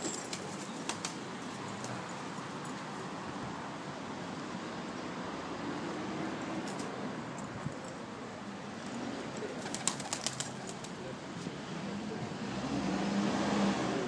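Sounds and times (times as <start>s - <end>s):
pigeon wings flapping: 0.0s - 1.2s, 9.6s - 11.0s.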